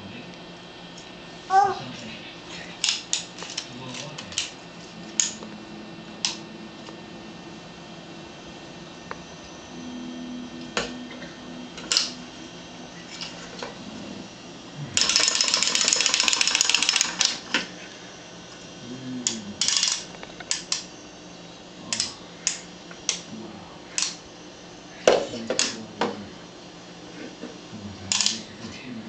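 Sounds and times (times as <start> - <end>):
wind-up toy clicking buzz: 15.0 - 17.4.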